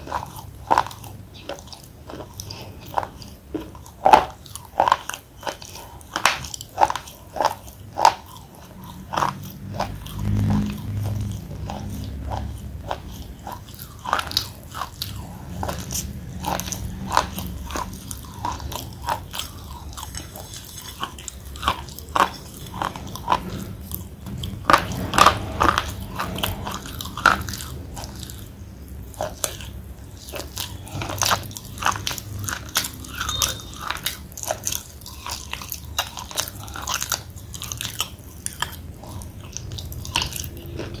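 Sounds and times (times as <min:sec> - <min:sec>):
pasty chewing: 0:00.0 - 0:41.0.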